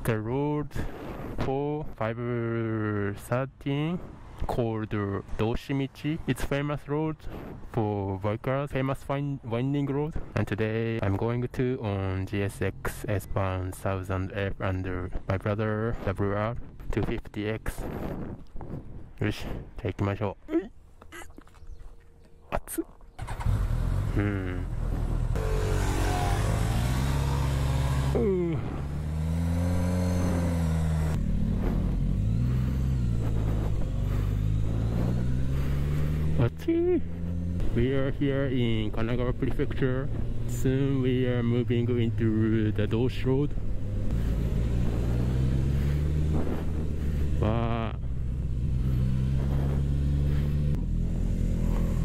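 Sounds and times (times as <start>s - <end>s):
motorcycle engine revving: 23.1s - 52.0s.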